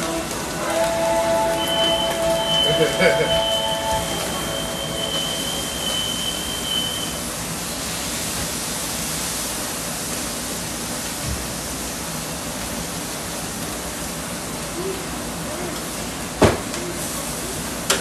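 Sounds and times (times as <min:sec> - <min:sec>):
thin high tone: 0:00.0 - 0:07.3
food sizzling on a griddle: 0:00.0 - 0:18.0.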